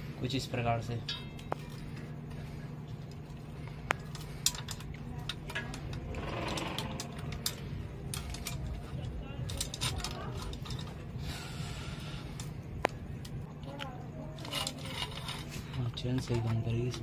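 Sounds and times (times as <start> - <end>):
steady low hum: 0.0 - 17.0
chain rattling: 4.0 - 11.2, 13.2 - 17.0
metal chain links clinking: 4.1 - 11.2, 13.7 - 17.0.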